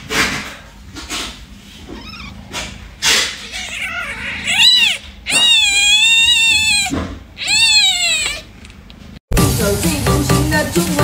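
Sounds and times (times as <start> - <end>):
kitten mewing: 1.9 - 8.5.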